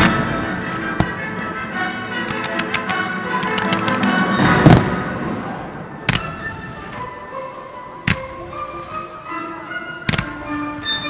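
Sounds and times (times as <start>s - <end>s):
music with sustained notes: 0.0s - 11.0s
firework bang: 4.4s - 6.2s.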